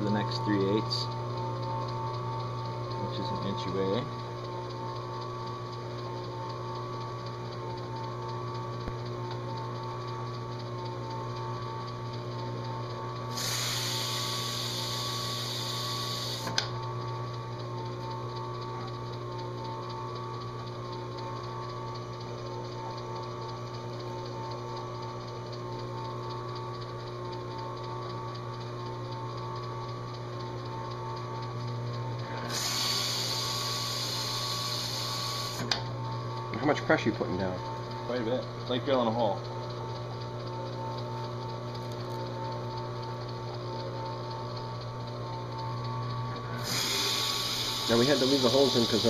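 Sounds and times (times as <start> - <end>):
drill press motor humming: 0.0 - 49.0
loud hiss: 46.6 - 49.0.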